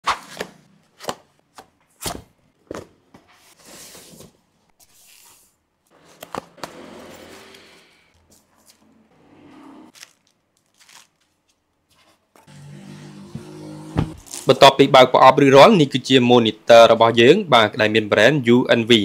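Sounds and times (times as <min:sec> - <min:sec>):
plastic wrapping rustling: 0:09.9 - 0:11.7.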